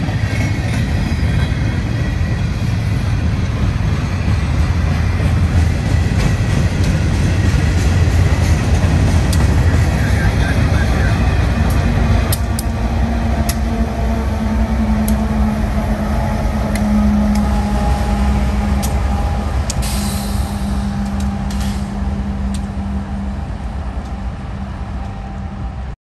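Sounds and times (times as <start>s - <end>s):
wheels clicking on rails: 0.0s - 25.7s
heavy wheel rumble: 0.0s - 26.0s
locomotive engine drone: 0.0s - 26.0s
brief hiss: 19.8s - 20.8s.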